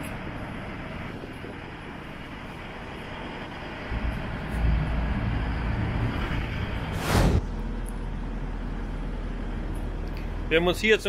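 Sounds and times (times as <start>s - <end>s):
excavator diesel engine rumbling: 0.0s - 11.0s
hydraulics working: 0.0s - 11.0s.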